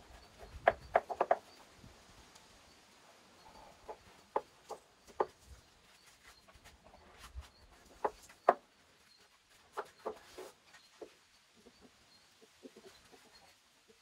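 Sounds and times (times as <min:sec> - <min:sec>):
chickens clucking: 0:00.0 - 0:01.6, 0:06.6 - 0:08.7, 0:09.6 - 0:14.0.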